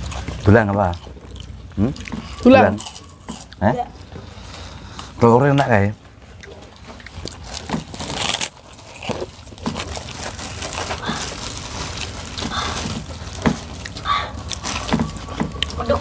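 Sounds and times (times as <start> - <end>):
plastic bag crinkling: 6.8 - 16.0.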